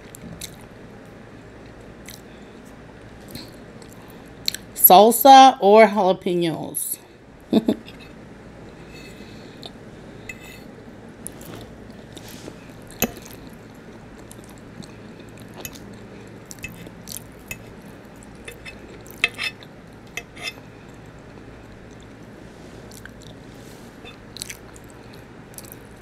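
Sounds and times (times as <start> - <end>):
soft chewing: 1.4 - 4.7, 8.0 - 26.0
fork scraping a plate: 8.9 - 9.2, 10.3 - 10.7, 18.4 - 19.6, 20.2 - 20.6.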